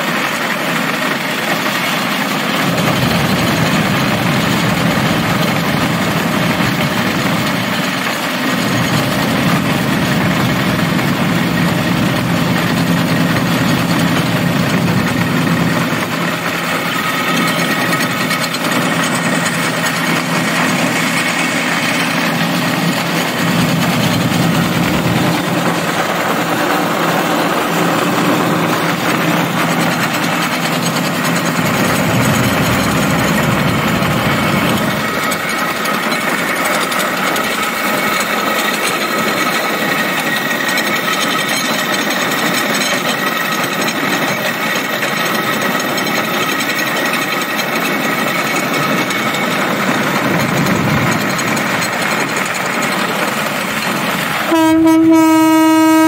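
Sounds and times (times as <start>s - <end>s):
rail cart clattering on track: 0.0s - 56.0s
horn sounding: 54.4s - 56.0s.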